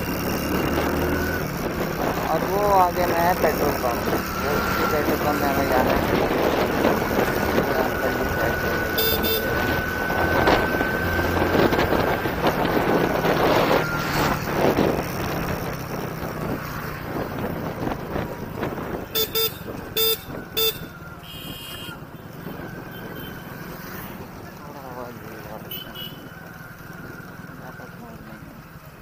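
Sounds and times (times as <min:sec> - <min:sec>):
motorcycle engine running: 0:00.0 - 0:29.0
wind and road noise: 0:00.0 - 0:29.0
horn beeps: 0:07.8 - 0:11.2, 0:19.1 - 0:22.0, 0:22.9 - 0:23.5, 0:25.6 - 0:26.3.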